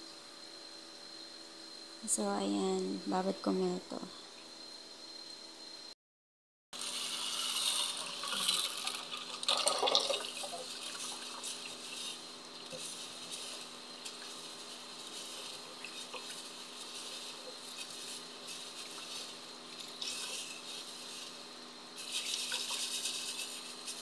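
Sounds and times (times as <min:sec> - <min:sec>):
hand swishing beans in water: 0:06.8 - 0:24.0
tap water running into a bowl: 0:06.9 - 0:11.8.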